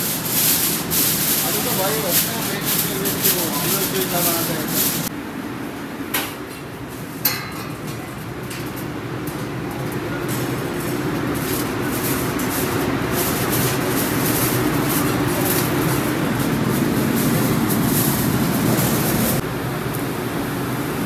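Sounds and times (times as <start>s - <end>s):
steady rumbling: 0.0s - 6.1s, 6.8s - 19.6s.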